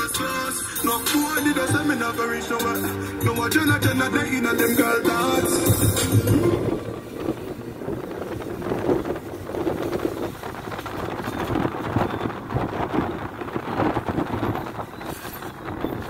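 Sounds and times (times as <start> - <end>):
road noise inside car: 0.0 - 16.0
wind buffeting microphone: 3.2 - 16.0.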